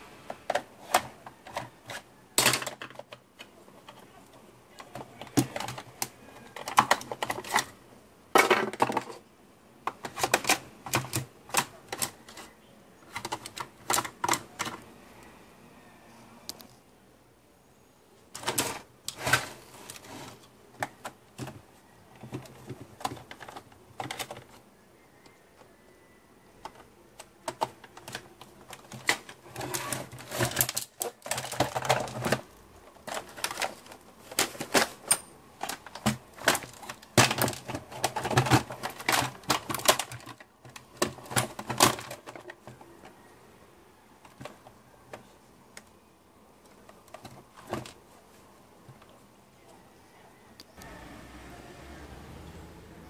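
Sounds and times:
plastic parts clicking and rattling: 0:00.3 - 0:09.2, 0:09.8 - 0:14.8, 0:18.3 - 0:24.7, 0:26.6 - 0:43.2, 0:44.2 - 0:46.0, 0:46.6 - 0:48.0.

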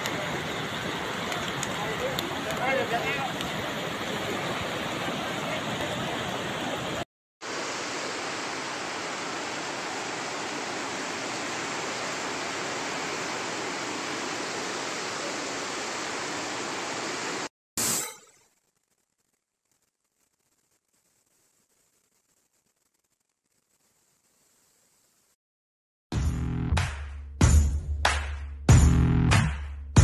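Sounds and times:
floodwater rushing: 0:00.0 - 0:17.5.

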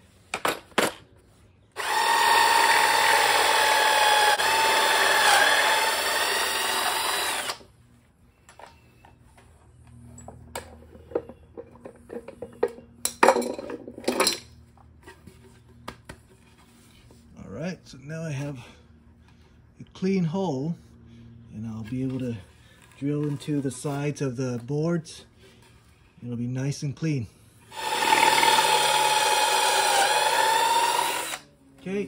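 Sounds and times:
power drill whining into wood: 0:01.8 - 0:07.7, 0:27.7 - 0:31.5.

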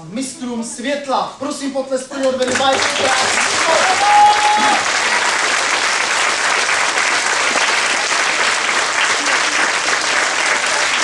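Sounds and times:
audience applause: 0:02.4 - 0:11.0.

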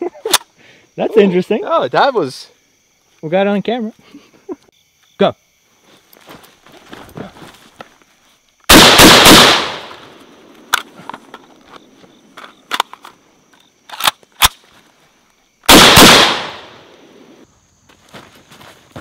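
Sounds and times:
rifle fire bursts: 0:08.7 - 0:10.0, 0:15.7 - 0:16.9.

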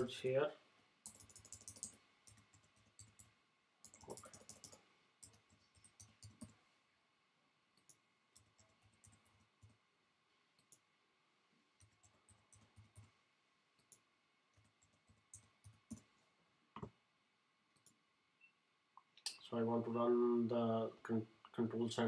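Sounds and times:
keyboard typing: 0:01.0 - 0:06.6, 0:07.8 - 0:09.8, 0:11.8 - 0:13.1, 0:13.8 - 0:16.1.

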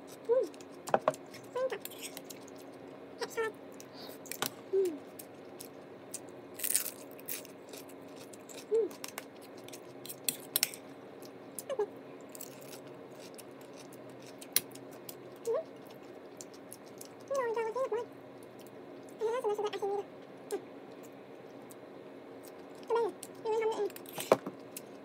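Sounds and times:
close-up chewing: 0:00.1 - 0:03.0, 0:05.0 - 0:19.2.

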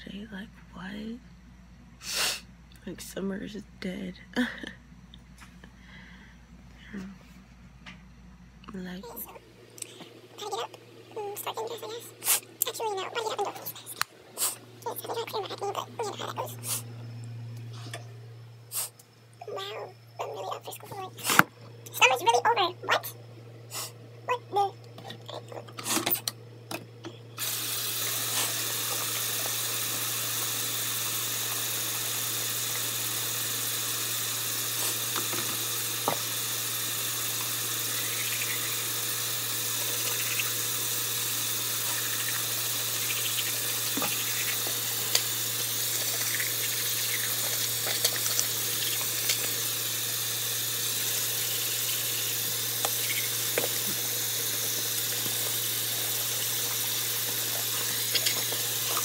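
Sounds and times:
tap water running into sink: 0:27.4 - 0:59.0.

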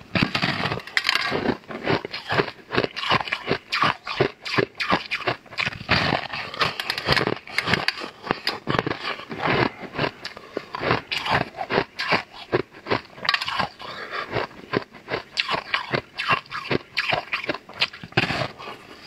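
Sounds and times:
crisp crunches of chewing: 0:00.0 - 0:19.0.

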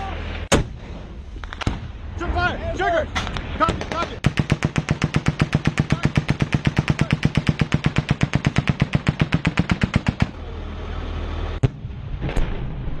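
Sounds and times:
low steady rumble: 0:00.0 - 0:13.0
sharp crack: 0:00.2 - 0:02.0, 0:03.1 - 0:10.4
machine gun firing: 0:03.7 - 0:10.4.

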